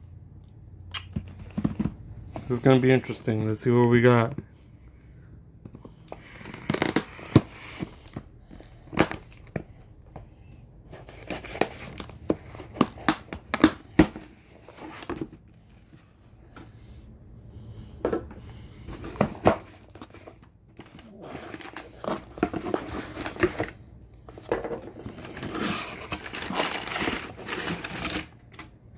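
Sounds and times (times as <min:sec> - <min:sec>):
packing tape slit and torn: 0:06.2 - 0:07.8
packing paper crinkling: 0:19.0 - 0:23.8, 0:24.9 - 0:28.7.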